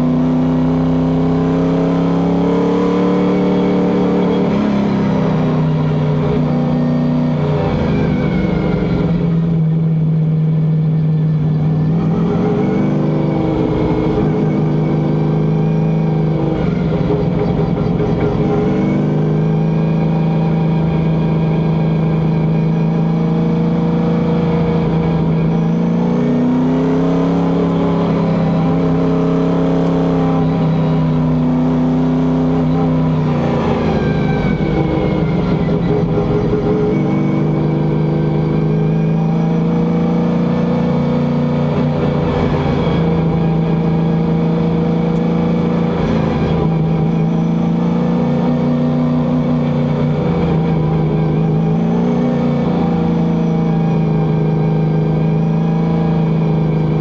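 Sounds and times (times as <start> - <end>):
race car engine running hard: 0.0 - 57.0.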